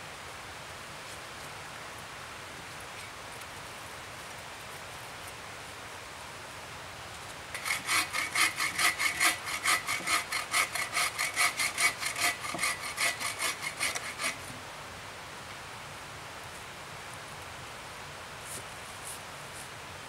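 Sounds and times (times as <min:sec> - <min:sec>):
bow saw cutting log: 0:07.5 - 0:14.6.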